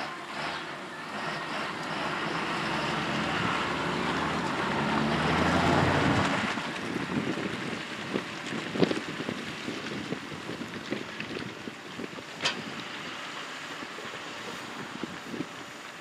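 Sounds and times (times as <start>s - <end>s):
tractor diesel engine pulling: 0.0s - 16.0s
tyres churning through mud: 0.0s - 16.0s.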